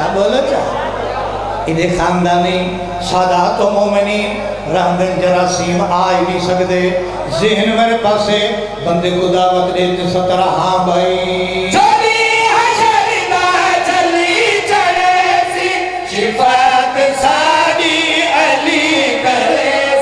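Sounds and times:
men singing together: 11.1 - 20.0.

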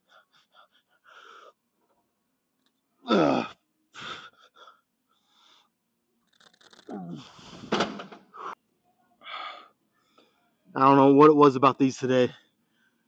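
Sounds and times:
man groaning sigh: 3.1 - 3.6
man breathing hard: 4.0 - 5.7, 7.1 - 8.6, 9.2 - 10.3.

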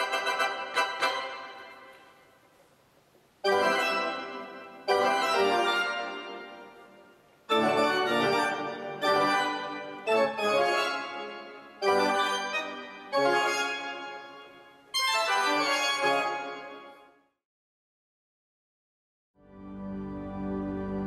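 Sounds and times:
pipe organ chords: 3.4 - 16.9, 19.4 - 21.0.

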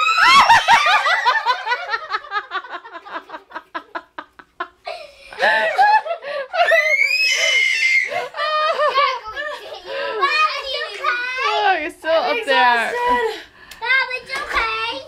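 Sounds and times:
woman laughing hard: 0.2 - 7.5, 8.1 - 10.0.

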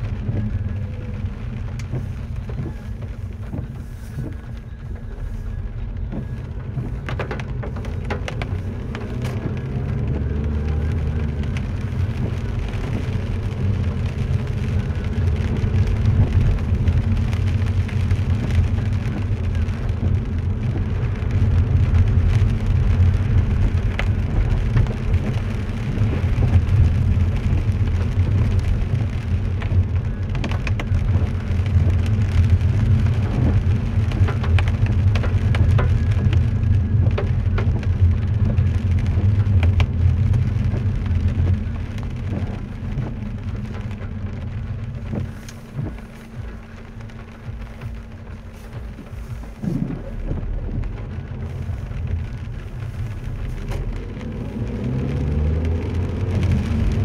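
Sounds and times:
car engine and tyres rumbling: 0.0 - 57.0
rain and spray hissing: 0.0 - 57.0.

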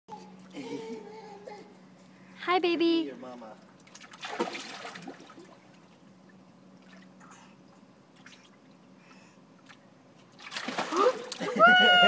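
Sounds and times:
pool water sloshing and dripping: 3.6 - 11.6.

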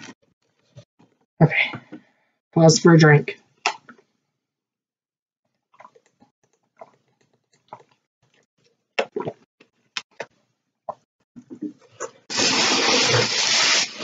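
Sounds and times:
person swallowing: 9.0 - 9.4.

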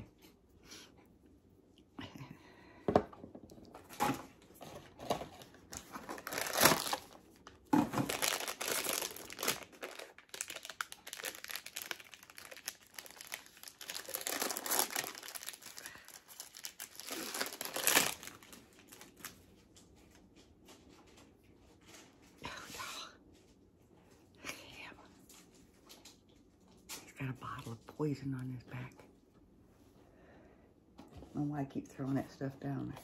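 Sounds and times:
packaging crinkling and tearing: 3.9 - 19.4.

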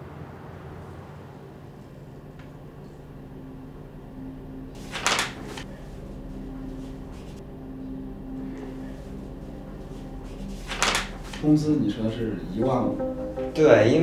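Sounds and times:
low room hum: 0.0 - 14.0
paper rustling: 4.8 - 5.7, 10.2 - 11.5.

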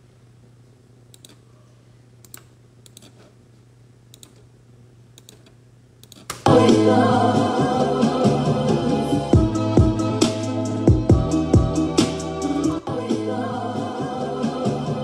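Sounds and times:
mouse and keyboard clicks: 5.2 - 6.4
loud music playing: 6.5 - 15.0.

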